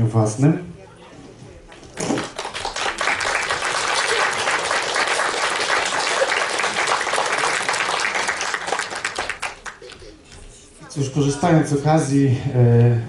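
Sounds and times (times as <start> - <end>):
audience applauding: 1.8 - 10.3.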